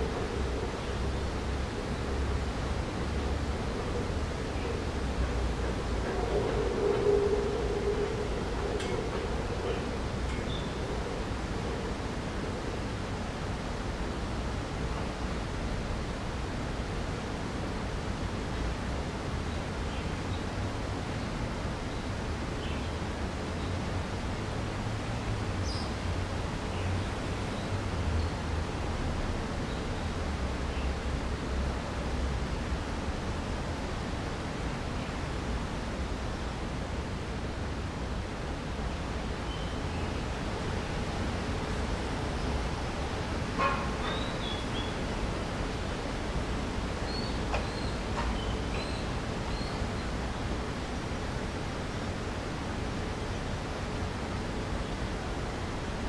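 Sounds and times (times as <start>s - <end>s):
steady rushing noise: 0.0s - 19.8s.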